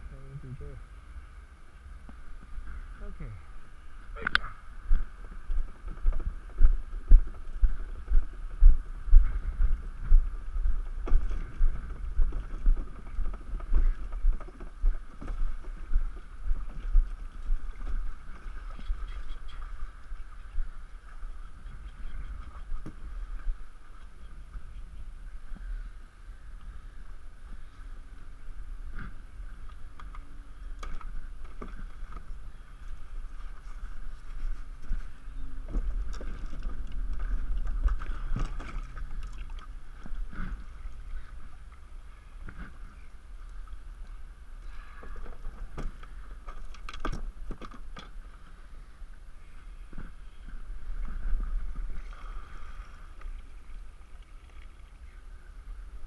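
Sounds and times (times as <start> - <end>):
wind rumble on microphone: 0.0 - 56.0
water splashing: 34.1 - 48.6, 49.9 - 56.0.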